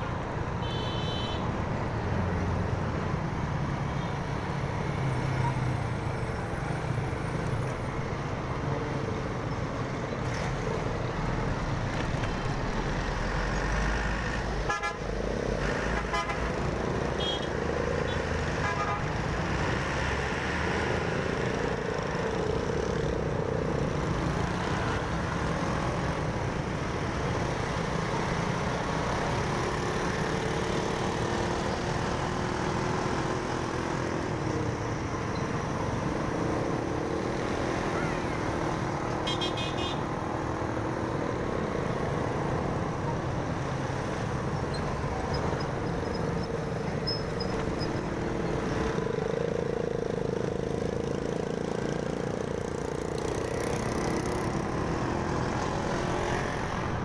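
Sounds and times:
road noise: 0:00.0 - 0:57.0
vehicle horns beeping: 0:00.6 - 0:01.4, 0:39.2 - 0:40.0.

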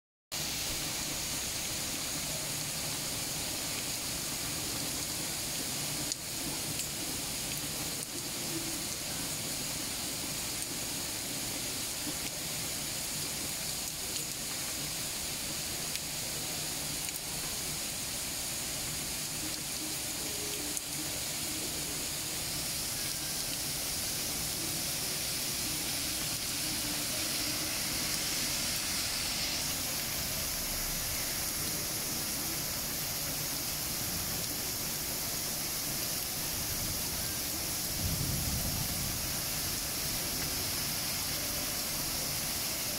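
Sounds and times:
heavy rain pouring: 0:00.3 - 0:42.9.

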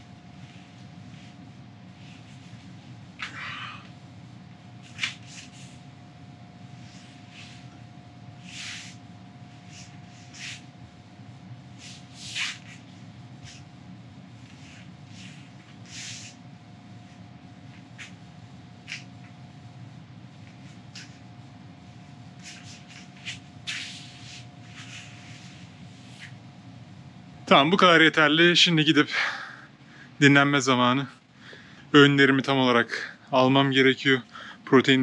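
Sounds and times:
man breathing sharply: 0:29.1 - 0:30.2, 0:31.3 - 0:31.9, 0:34.3 - 0:34.7.

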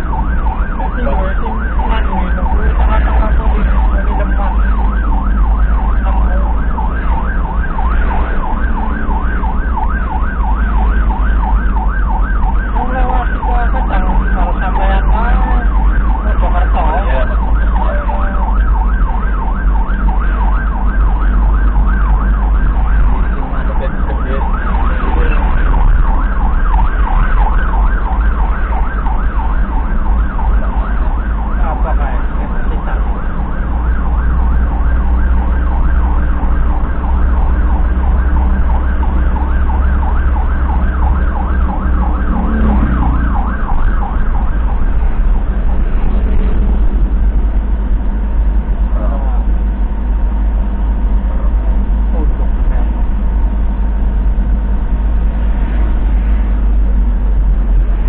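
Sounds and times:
engine and road rumble: 0:00.0 - 0:58.0
siren yelping: 0:00.0 - 0:58.0
slow sweeping siren tone: 0:00.0 - 0:58.0.

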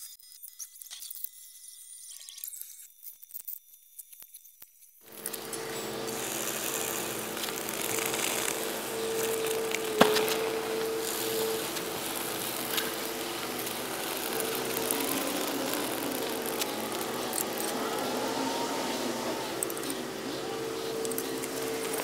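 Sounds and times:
mechanical running hum: 0:05.0 - 0:22.0.

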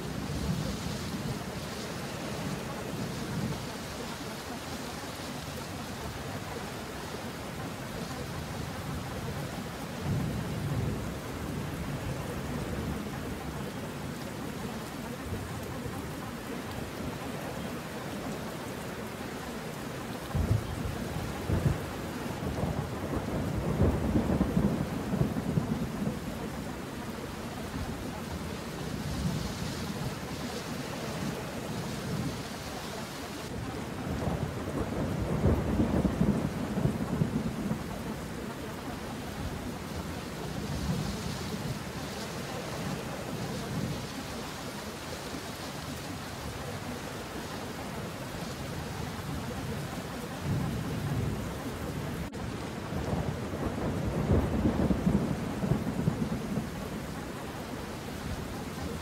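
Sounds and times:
steady rain: 0:00.0 - 0:59.0
low thunder rolling: 0:20.3 - 0:32.6, 0:33.4 - 0:45.4, 0:46.0 - 0:59.0.

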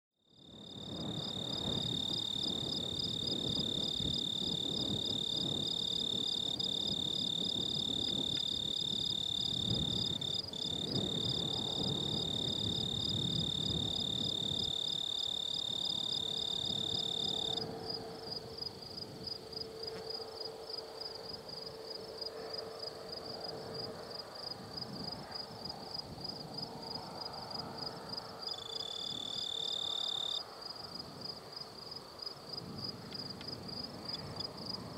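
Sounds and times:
insects rapid pulsing trill: 0:00.3 - 0:19.8, 0:26.3 - 0:30.4
insects high-pitched trill: 0:00.3 - 0:25.2, 0:25.9 - 0:32.4.

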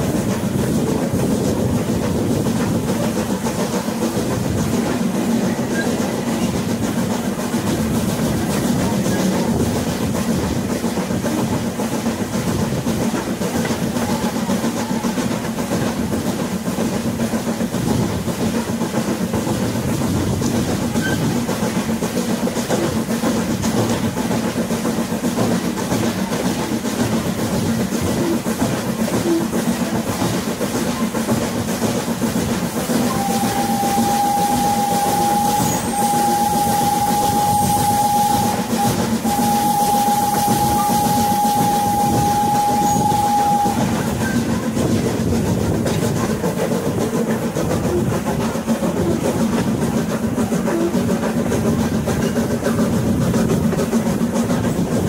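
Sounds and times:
train wheels rumbling: 0:00.0 - 0:55.0
steam locomotive whistle: 0:32.9 - 0:44.7.

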